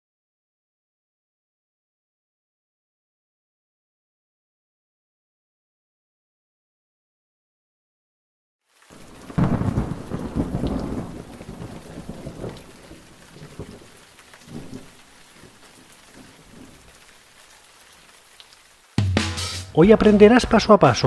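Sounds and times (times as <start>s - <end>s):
rain falling: 8.6s - 21.0s
thunder rumbling: 8.9s - 16.9s.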